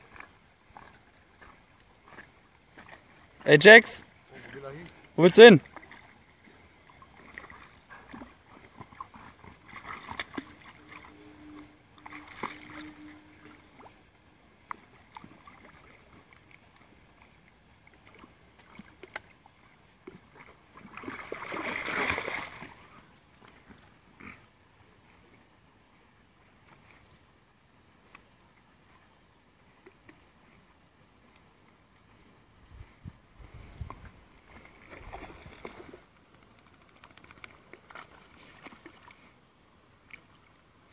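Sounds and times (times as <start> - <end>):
dogs splashing in water: 0.0 - 3.4, 5.6 - 11.1, 14.7 - 22.9.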